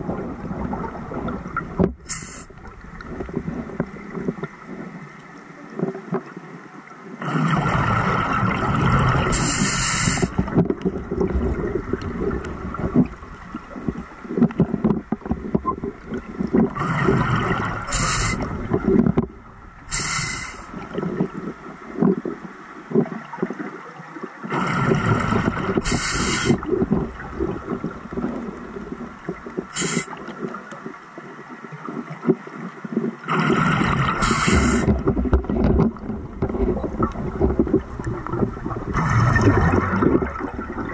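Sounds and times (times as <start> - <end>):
exhaust bubbles bubbling: 0.0 - 2.0, 7.2 - 9.5, 10.2 - 14.8, 15.4 - 20.0, 24.5 - 30.0, 33.3 - 40.9
diver breathing through regulator: 2.1 - 2.5, 9.3 - 10.5, 16.8 - 18.6, 19.9 - 20.8, 24.5 - 26.7, 29.7 - 30.2, 33.4 - 35.1.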